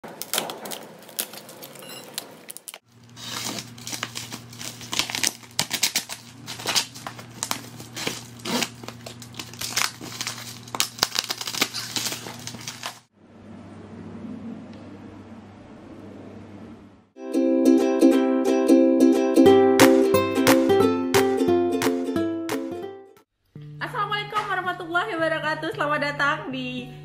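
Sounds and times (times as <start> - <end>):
plastic wrap crinkling and tearing: 0.0 - 13.1.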